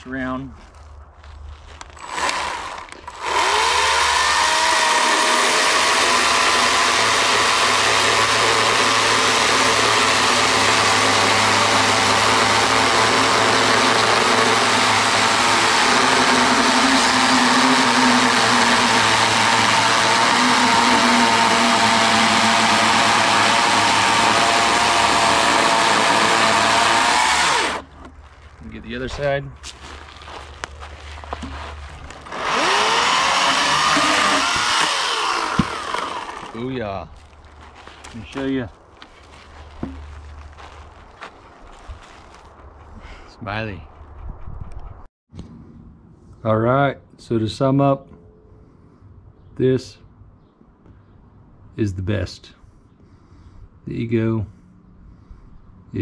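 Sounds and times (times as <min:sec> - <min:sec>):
electric chainsaw cutting log: 0:02.0 - 0:28.0, 0:31.3 - 0:36.8.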